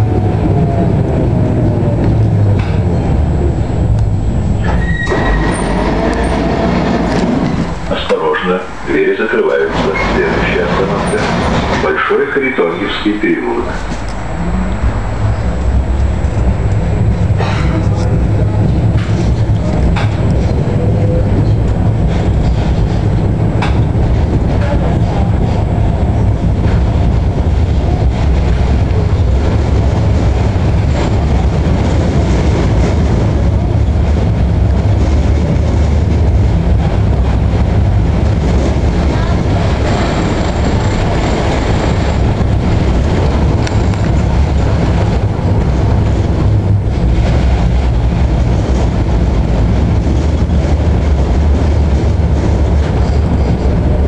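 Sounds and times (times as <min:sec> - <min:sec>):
tram wheels rumbling on rails: 0:00.0 - 0:54.0
wheels clicking on track: 0:16.3 - 0:54.0.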